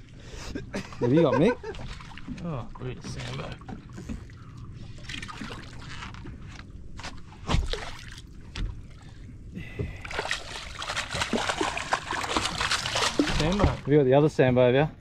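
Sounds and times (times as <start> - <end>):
wind and water noise: 0.0 - 15.0
fish splashing at surface: 10.1 - 13.9.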